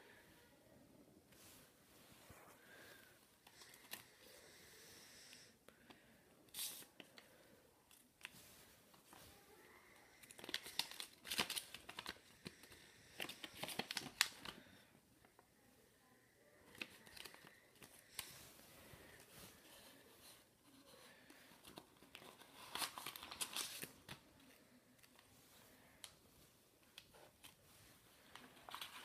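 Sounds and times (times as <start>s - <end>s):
paper rustling and crinkling: 10.2s - 14.6s, 16.7s - 25.7s, 26.8s - 29.0s.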